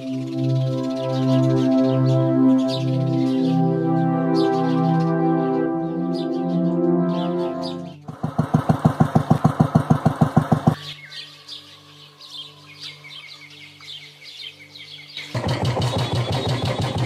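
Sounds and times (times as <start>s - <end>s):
birds chirping: 0.0s - 17.0s
motorcycle engine thumping: 8.0s - 10.8s, 15.4s - 17.0s.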